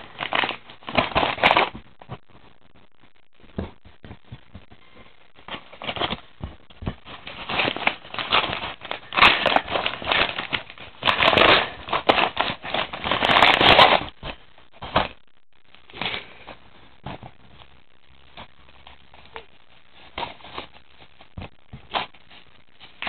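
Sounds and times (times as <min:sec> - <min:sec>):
paper mailer crinkling: 0:00.0 - 0:01.8, 0:05.3 - 0:15.2.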